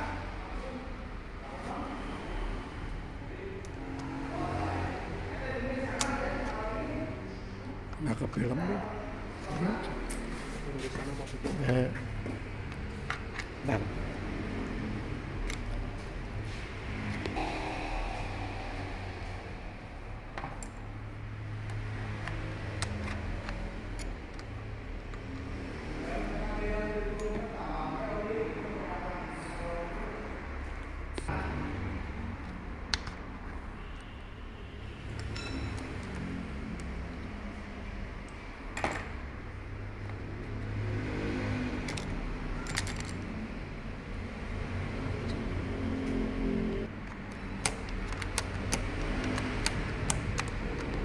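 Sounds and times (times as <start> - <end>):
steady low hum: 12.0 - 34.0
small metal parts clicking: 41.9 - 43.3.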